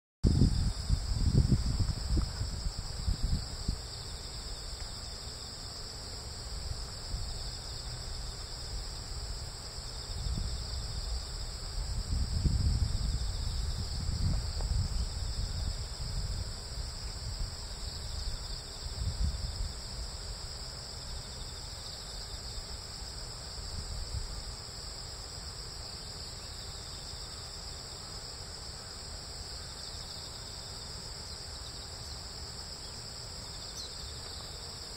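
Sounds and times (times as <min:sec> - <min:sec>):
wind buffeting microphone: 0:00.2 - 0:04.0, 0:10.1 - 0:19.9
insects chirring: 0:00.2 - 0:34.9.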